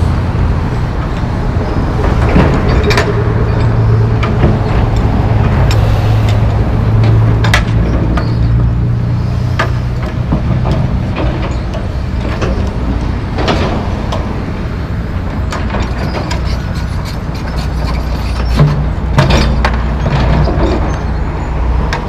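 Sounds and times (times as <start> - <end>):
diesel engines droning: 0.0 - 22.0
debris clanking and thudding: 18.4 - 21.0.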